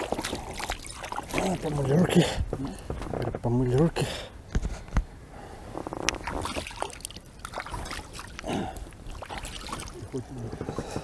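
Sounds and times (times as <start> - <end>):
water splashing and dripping: 0.0 - 2.0, 6.2 - 10.2.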